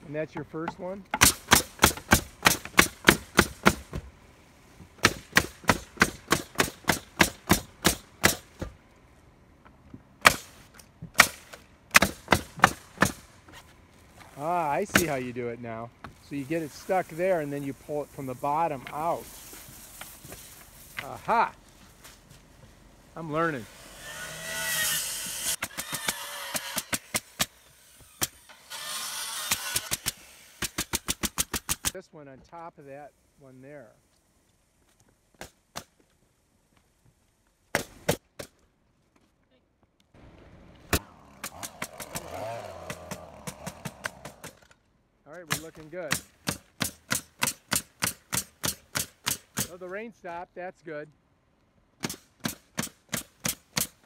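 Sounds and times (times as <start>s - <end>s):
steady hiss with faint hum: 0.0s - 54.0s
hammer driving nails: 1.1s - 4.0s, 5.0s - 8.7s, 24.0s - 31.9s, 45.5s - 49.8s, 52.0s - 54.0s.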